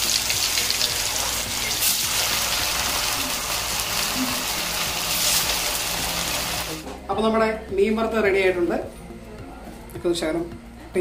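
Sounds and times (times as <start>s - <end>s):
fish sizzling in hot oil: 0.0s - 6.8s.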